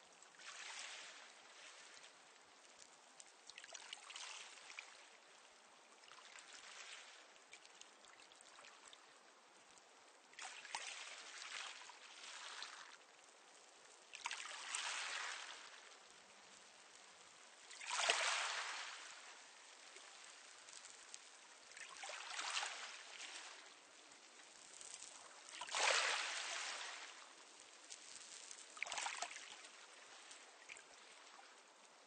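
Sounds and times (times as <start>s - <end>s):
low steady hiss: 0.0s - 32.0s
waves washing on pebble beach: 17.7s - 19.5s, 24.7s - 29.5s.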